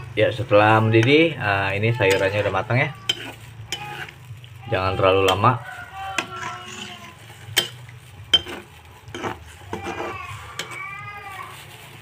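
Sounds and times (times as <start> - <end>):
spatula stirring broth: 0.0 - 12.0
spatula clacking against pan: 6.2 - 10.8.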